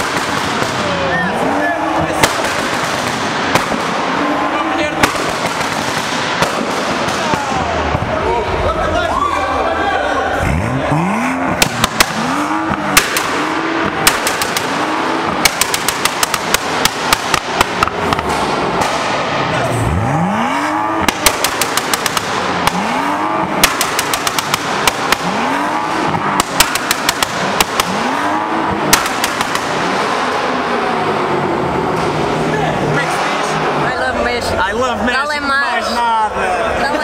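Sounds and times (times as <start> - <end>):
exhaust pops and bangs: 0.0 - 1.2, 2.0 - 8.2, 11.5 - 19.7, 20.9 - 33.7
car engine revving: 0.0 - 37.0.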